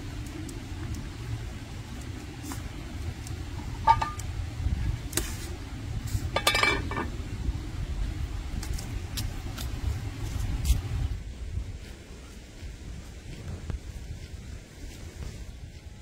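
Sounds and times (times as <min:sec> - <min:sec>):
steady low rumble: 0:00.0 - 0:16.0
kitchenware clinking: 0:03.8 - 0:04.2, 0:06.4 - 0:07.1.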